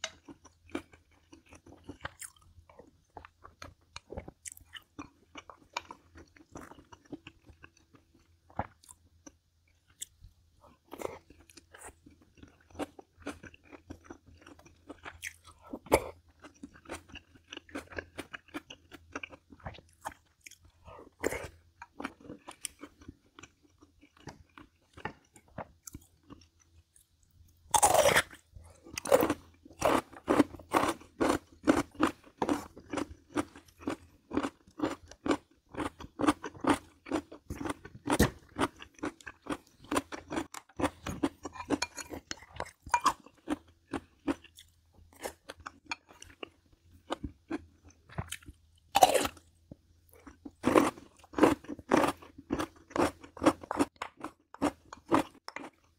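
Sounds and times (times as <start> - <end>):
crunchy bites: 27.7 - 41.9.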